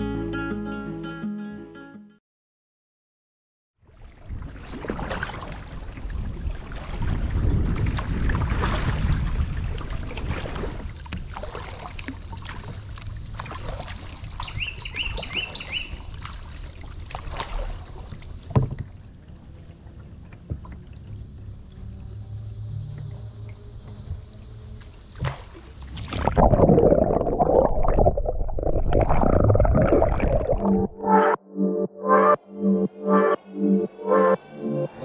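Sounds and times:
kayak paddle splashing in water: 4.0s - 19.6s, 24.8s - 30.7s
wind rumbling on microphone: 4.2s - 22.2s
bird chirping: 14.4s - 16.0s.

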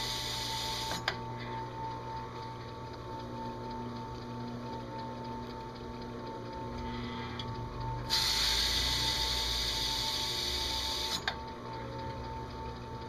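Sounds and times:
drill press whining: 0.0s - 1.7s, 7.1s - 11.4s
abrasive pad hissing on metal: 8.1s - 11.2s.

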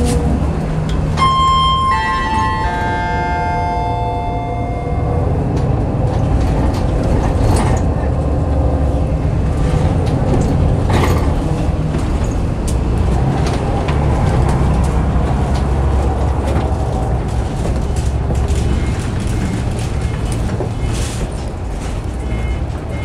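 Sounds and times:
diesel bus engine idling: 0.0s - 23.0s.

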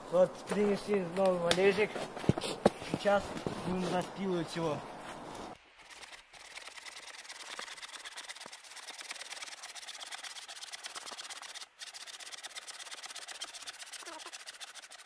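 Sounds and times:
hand saw cutting wood: 5.8s - 15.0s.

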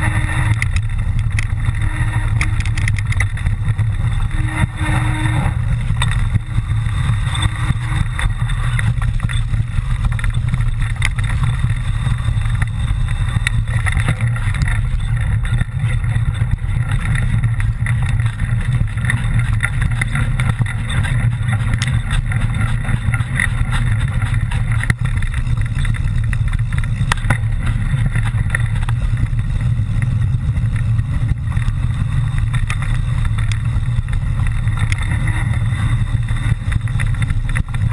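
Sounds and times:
bike knocks and rattles: 0.0s - 37.9s
wind rumble on microphone: 0.0s - 37.9s.

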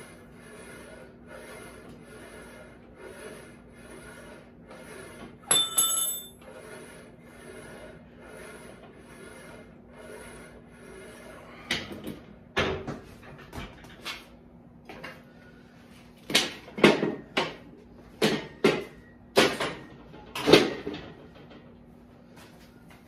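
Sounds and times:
metal clank with ringing tone: 5.5s - 6.4s.

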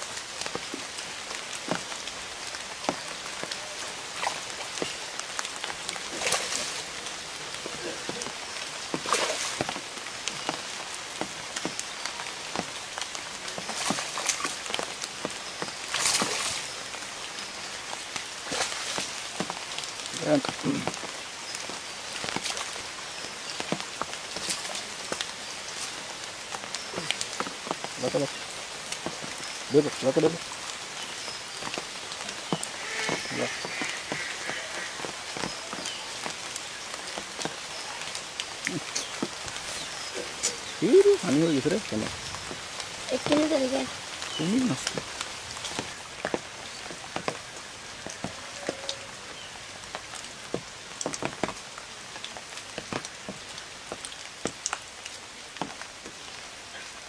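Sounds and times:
steady watery hiss: 0.0s - 57.0s
fish splashing in water: 3.0s - 10.8s, 13.5s - 14.9s, 15.5s - 17.0s.

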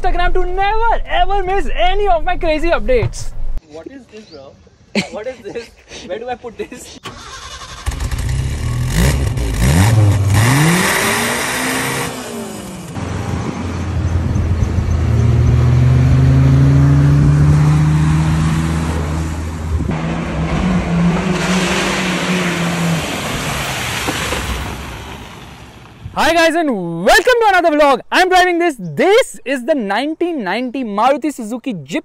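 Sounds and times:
car engine revving: 7.1s - 25.9s
tyres spraying mud and water: 17.6s - 26.1s.

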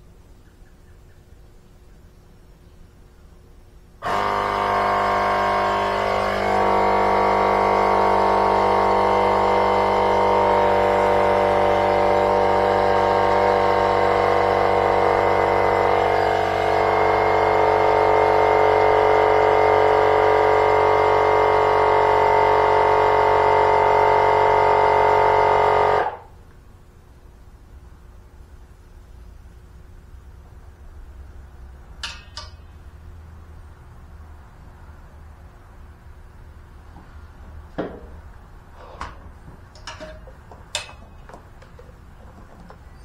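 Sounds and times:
small air compressor running: 4.0s - 26.3s.

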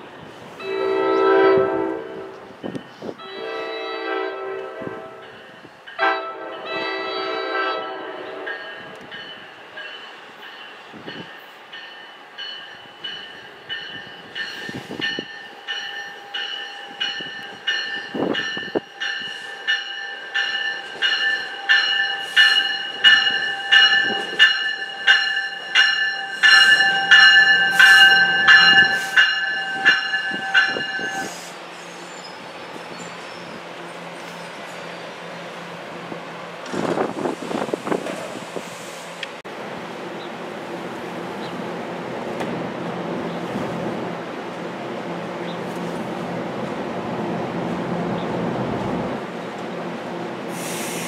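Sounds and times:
train horn blast: 0.6s - 2.5s, 3.2s - 5.4s, 6.0s - 8.9s, 26.3s - 31.4s
train bell ringing: 8.3s - 31.4s.

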